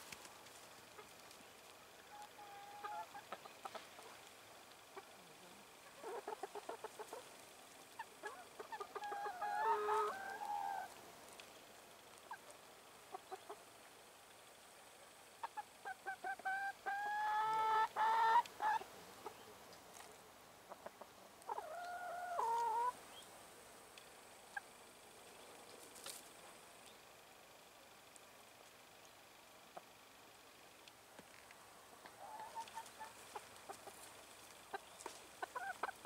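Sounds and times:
hens clucking: 0:00.9 - 0:01.3, 0:02.0 - 0:11.0, 0:12.2 - 0:13.7, 0:15.4 - 0:20.1, 0:20.7 - 0:23.0, 0:31.9 - 0:36.0
hen drawn-out calls: 0:02.0 - 0:04.2, 0:05.9 - 0:07.3, 0:08.0 - 0:11.0, 0:15.4 - 0:19.4, 0:20.7 - 0:23.0, 0:32.0 - 0:34.0, 0:34.7 - 0:36.0.

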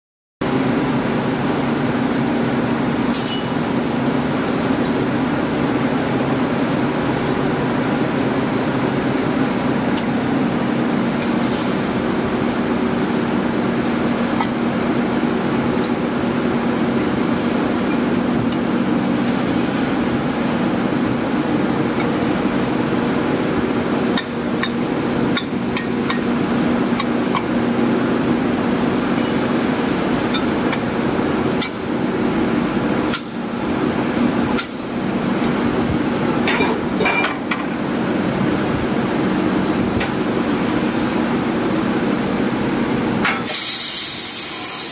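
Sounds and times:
hiss: 0:43.4 - 0:44.9.

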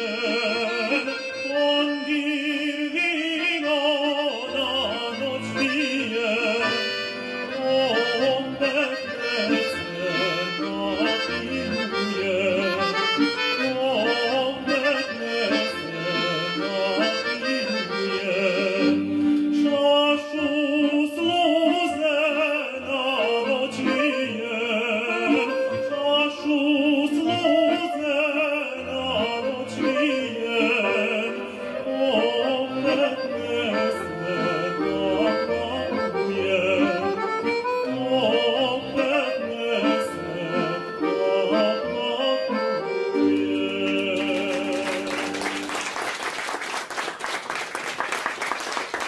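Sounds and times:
man singing folk song: 0:00.0 - 0:45.4
accordion: 0:00.0 - 0:49.0
audience applause: 0:44.1 - 0:49.0.

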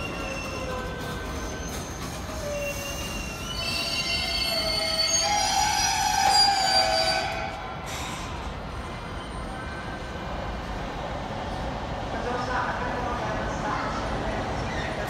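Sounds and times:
train brakes squealing: 0:00.0 - 0:10.1.

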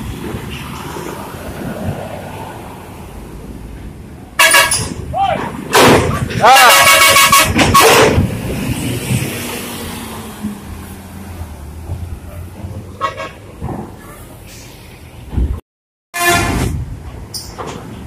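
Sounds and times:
bus musical air horn blasts: 0:04.4 - 0:05.0, 0:06.6 - 0:08.1, 0:16.1 - 0:16.8.

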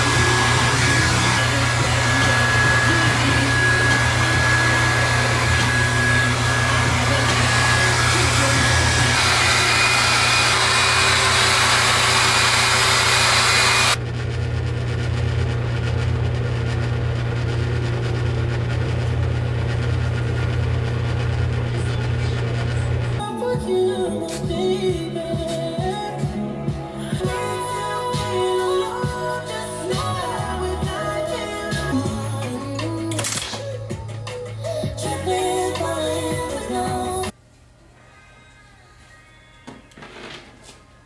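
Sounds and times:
hair dryer blowing: 0:00.0 - 0:14.0.

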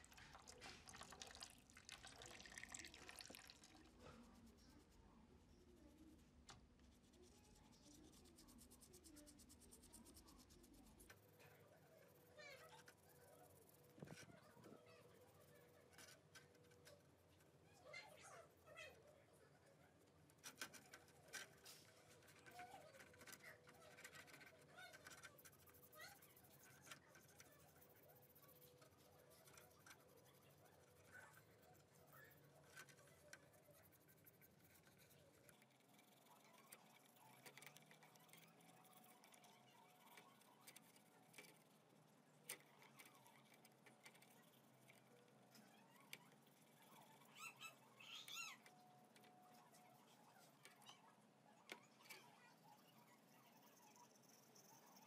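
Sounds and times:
toothbrush scrubbing metal parts: 0:19.7 - 0:51.0, 0:51.7 - 0:55.0.

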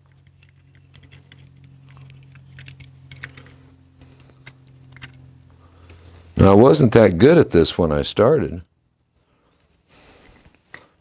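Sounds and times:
small metal parts clicking: 0:00.0 - 0:05.2
steady low hum: 0:00.0 - 0:11.0.

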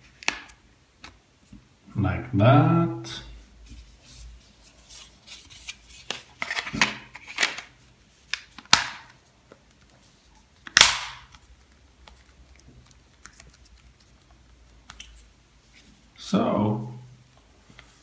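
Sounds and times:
handling rustle: 0:03.5 - 0:10.6
plastic phone cover snapping: 0:08.3 - 0:09.2, 0:10.6 - 0:11.5.

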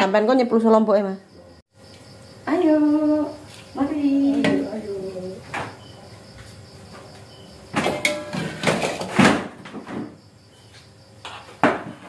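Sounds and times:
chair knocking down: 0:07.7 - 0:10.2, 0:11.6 - 0:12.0.

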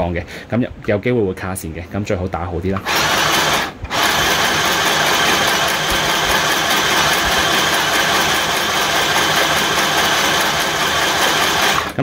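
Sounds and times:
electric sewing machine winding bobbin: 0:02.8 - 0:12.0.

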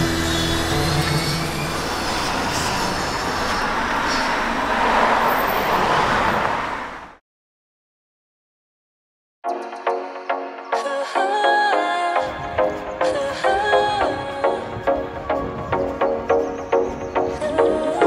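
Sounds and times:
street traffic noise: 0:00.0 - 0:07.2, 0:12.3 - 0:18.0.

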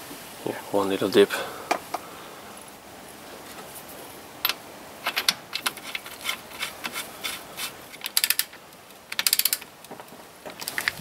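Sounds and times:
metal bolt and washer rattling: 0:04.4 - 0:09.7.

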